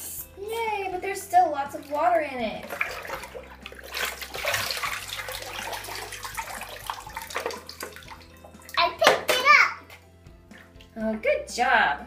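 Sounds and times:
bathwater splashing: 0:01.0 - 0:11.2
water pouring out of toy boat: 0:02.6 - 0:08.8.

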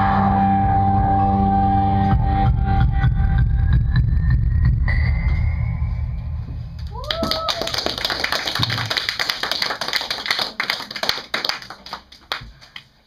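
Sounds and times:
small audience clapping: 0:06.8 - 0:13.0.

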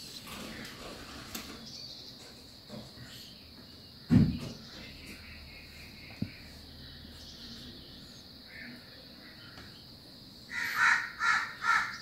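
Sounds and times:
crow cawing: 0:10.5 - 0:12.0.

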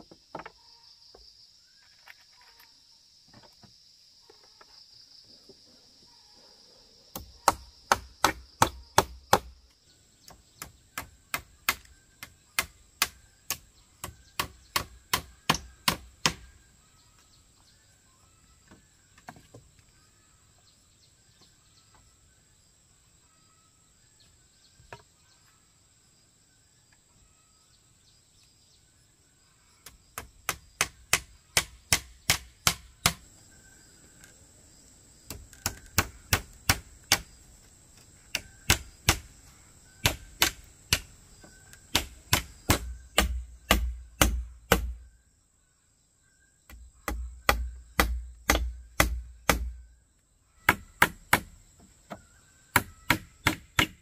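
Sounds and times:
faint chirping: 0:00.0 - 0:54.0
hammer driving nails into wood: 0:41.9 - 0:44.9, 0:47.0 - 0:49.7, 0:52.7 - 0:54.0.

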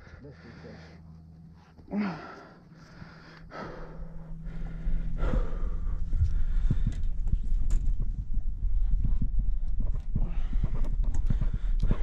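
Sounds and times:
person breathing hard: 0:00.0 - 0:07.5, 0:10.2 - 0:12.0
loud low rumble with knocks: 0:03.8 - 0:12.0.

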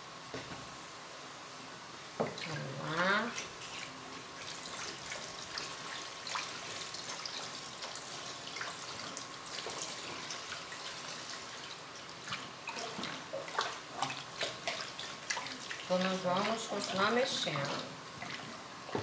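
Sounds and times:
liquid trickling into tub: 0:03.8 - 0:18.5.

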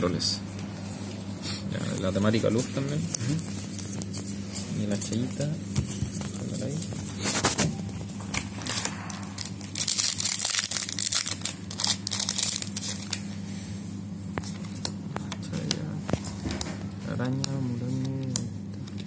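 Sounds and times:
wrapper tearing and crinkling: 0:08.5 - 0:13.2.

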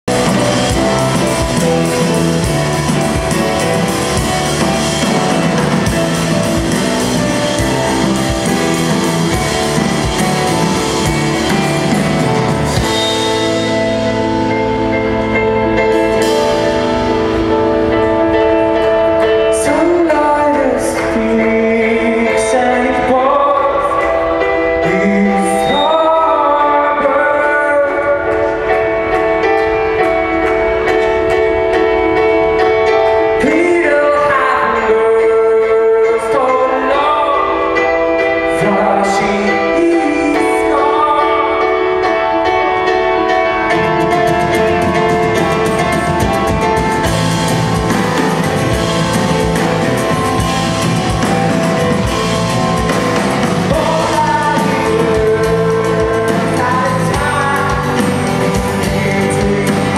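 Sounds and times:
live rock band playing: 0:00.0 - 0:59.9
man singing: 0:19.3 - 0:29.1, 0:33.1 - 0:47.2, 0:47.8 - 0:59.9.

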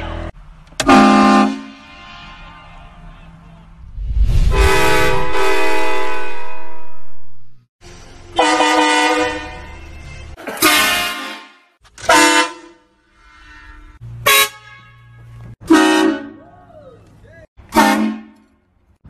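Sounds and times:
train horn blasts: 0:00.0 - 0:03.1, 0:04.5 - 0:07.3, 0:08.3 - 0:09.8, 0:10.5 - 0:16.4, 0:17.7 - 0:18.5.

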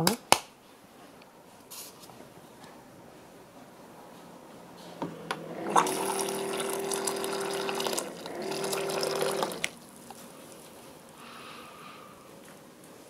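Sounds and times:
pump humming: 0:05.0 - 0:10.8
water pouring into a bowl: 0:05.6 - 0:10.3.

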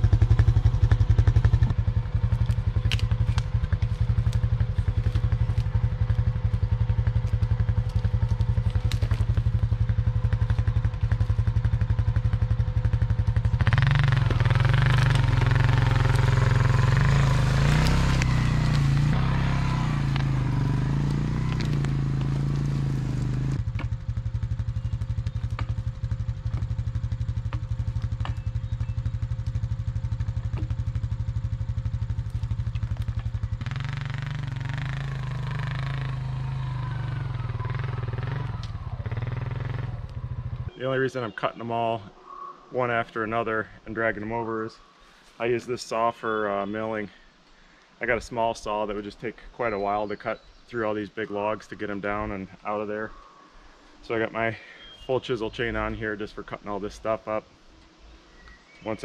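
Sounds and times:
atv engine idling and revving: 0:00.0 - 0:41.7.

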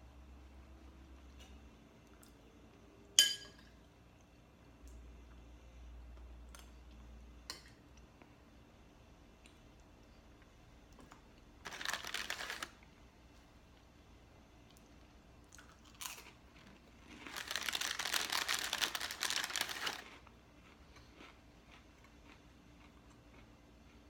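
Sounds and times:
plastic cracker sleeve crinkling: 0:11.6 - 0:12.8, 0:17.1 - 0:20.2.

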